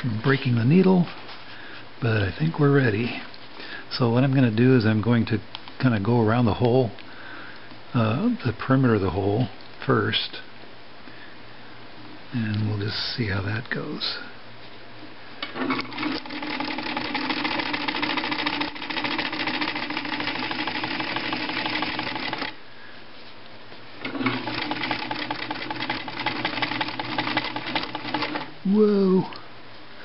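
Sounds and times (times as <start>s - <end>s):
sewing machine stitching: 15.6s - 22.6s, 24.0s - 28.5s.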